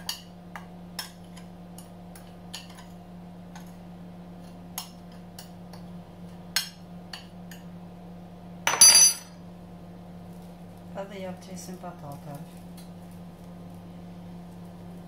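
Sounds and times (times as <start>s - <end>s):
spoon clinking with ringing: 8.7s - 9.3s.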